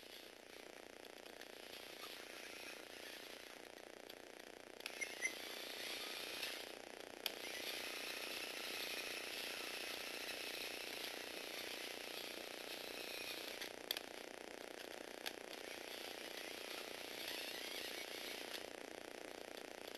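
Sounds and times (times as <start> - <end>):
toy robot motor whirring: 1.6 - 3.6, 4.8 - 14.1, 15.2 - 18.8.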